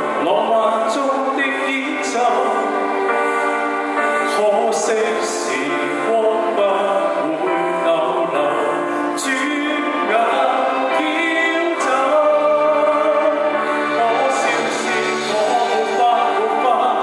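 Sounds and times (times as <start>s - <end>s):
person singing into microphone: 0.0s - 3.3s, 3.9s - 17.0s
backing music: 0.0s - 17.0s.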